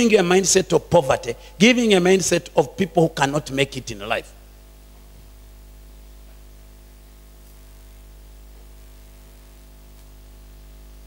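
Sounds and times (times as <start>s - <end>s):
electrical hum with hiss: 0.0s - 11.0s.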